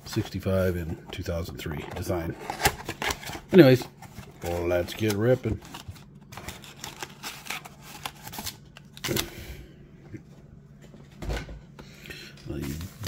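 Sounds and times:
card packs rustling and crinkling: 0.0 - 9.3, 12.5 - 13.0.

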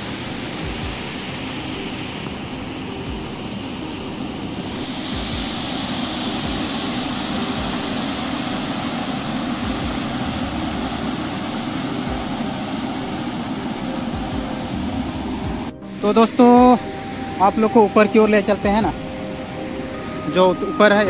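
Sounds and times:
waterfall rushing over rocks: 0.0 - 21.0
low thumps: 13.8 - 17.1.

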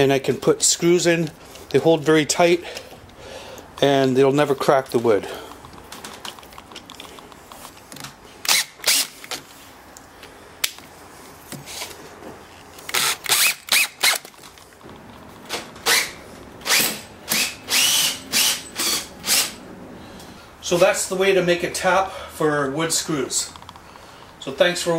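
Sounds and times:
cordless drill driving screws: 8.4 - 9.3, 12.8 - 14.3, 15.8 - 19.6.

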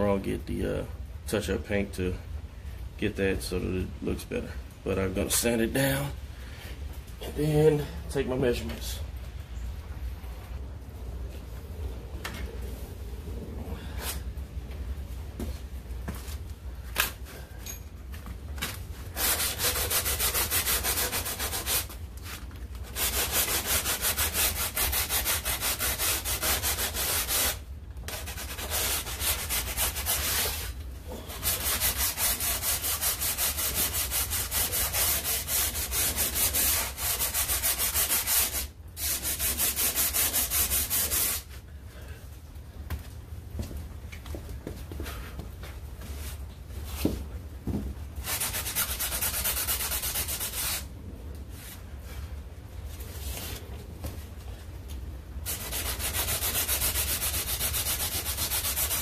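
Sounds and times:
sandpaper rubbing: 19.1 - 41.5, 48.2 - 50.9, 55.4 - 59.0.

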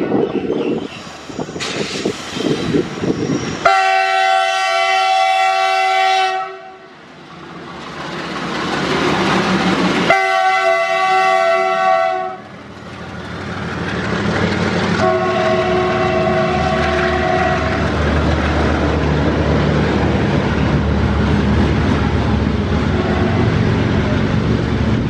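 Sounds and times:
train wheels on rails: 0.0 - 5.8, 6.8 - 25.0
locomotive engine: 0.6 - 25.0
locomotive horn: 3.6 - 7.0, 10.1 - 12.5, 15.0 - 18.0, 22.9 - 23.7.

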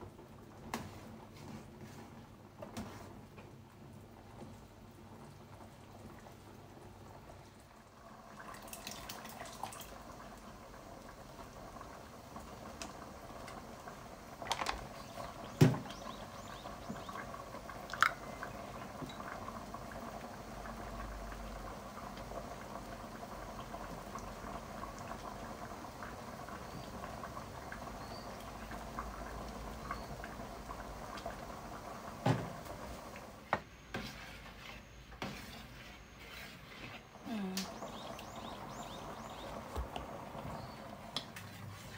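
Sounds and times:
liquid simmering in a pot: 0.0 - 41.9
ladle stirring: 33.9 - 37.2, 41.1 - 41.9.

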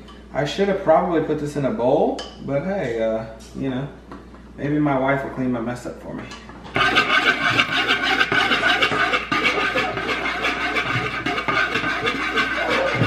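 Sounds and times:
spoon scraping plastic bowl: 6.7 - 13.0.

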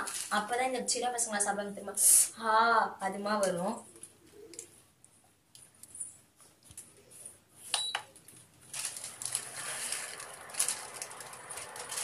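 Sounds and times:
steady rustling hiss: 0.0 - 12.0.

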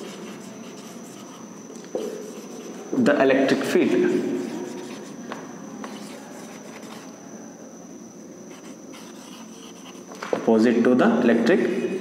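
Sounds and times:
marker scratching on whiteboard: 0.0 - 2.8, 4.1 - 5.2, 5.8 - 7.1, 8.5 - 10.1
faint high-pitched whine: 0.0 - 12.0.

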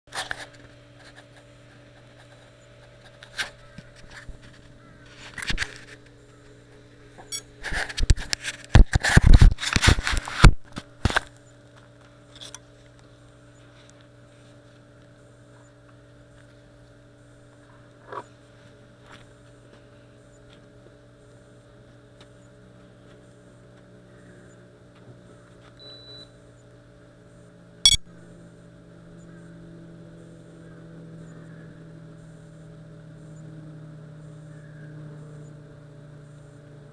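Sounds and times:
electrical hum: 0.1 - 36.9
short high beep: 27.9 - 28.1
single clicks: 27.9 - 28.1.

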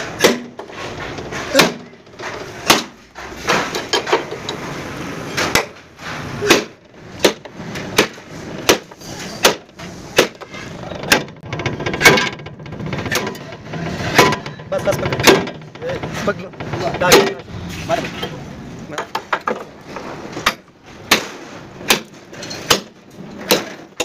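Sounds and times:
sledgehammer striking chisel on metal: 0.0 - 0.6, 1.3 - 4.3, 6.4 - 11.3, 20.4 - 24.0.

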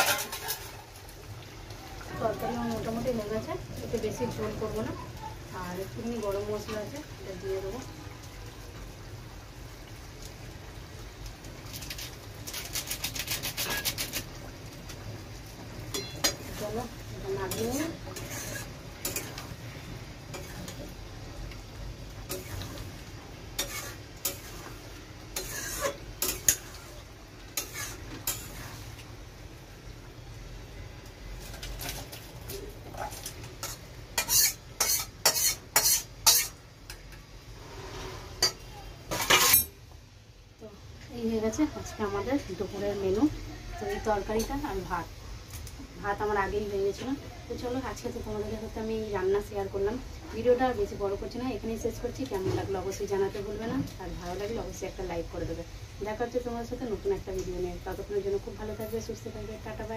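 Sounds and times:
metal spoon scraping a pot: 0.0 - 0.7, 12.5 - 14.3, 17.4 - 19.5, 22.3 - 22.8, 23.6 - 27.0, 27.6 - 28.8, 33.0 - 36.6, 37.6 - 39.7.

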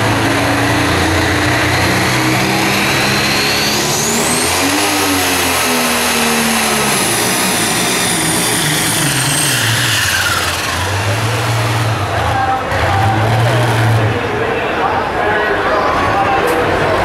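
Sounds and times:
tractor engine at full power: 0.0 - 15.4.

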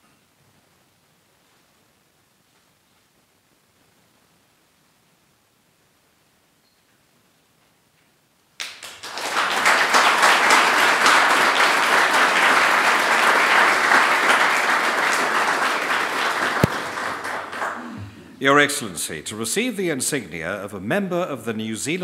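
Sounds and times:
audience applauding: 8.6 - 17.9
sharp knock: 16.6 - 17.0.

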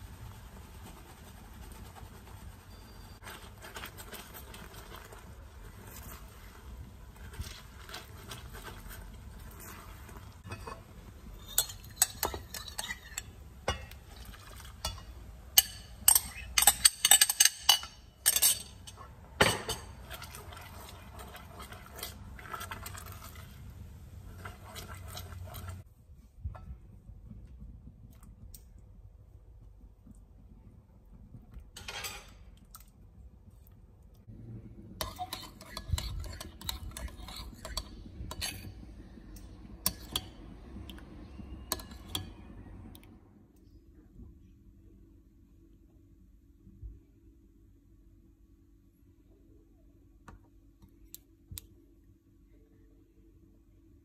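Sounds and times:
caramel bubbling in a saucepan: 0.0 - 25.9, 31.7 - 43.4
spatula scraping and tapping pan: 0.4 - 25.8, 35.0 - 40.5, 41.6 - 42.5
soft stirring clinks: 10.4 - 20.3, 35.0 - 42.5.

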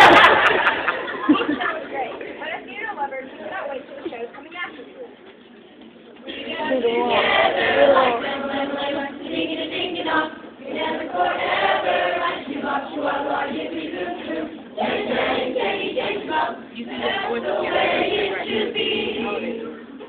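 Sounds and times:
young voices singing together: 6.2 - 20.0.

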